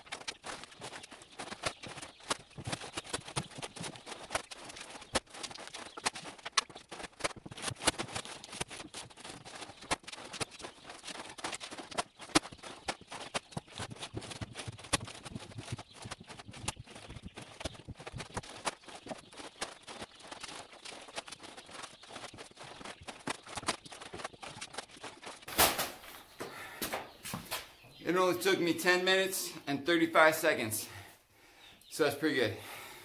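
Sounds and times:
rapid footsteps: 0:00.0 - 0:28.4
sacks dropped onto wooden pallet: 0:25.5 - 0:27.7.

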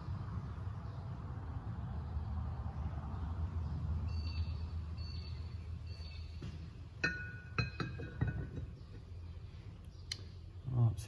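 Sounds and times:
metal piston tapping caliper: 0:07.0 - 0:08.7.

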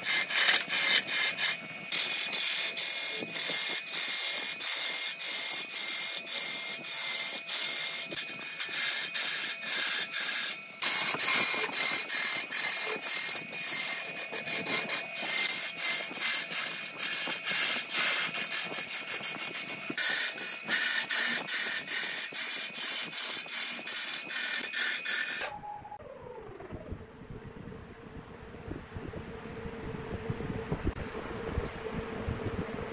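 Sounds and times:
gouge knocking on wood lathe: 0:00.0 - 0:25.5
wood cutting noise: 0:00.0 - 0:26.8
steady high tone: 0:25.5 - 0:31.0.

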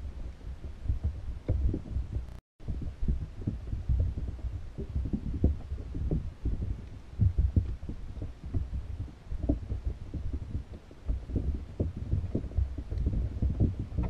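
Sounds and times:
muffled underwater thuds and rumble: 0:00.0 - 0:14.0.

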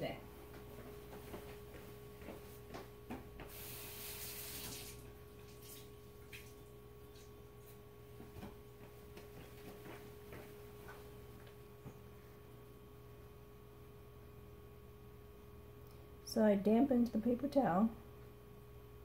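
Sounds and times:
water running from a tap: 0:03.5 - 0:06.6.

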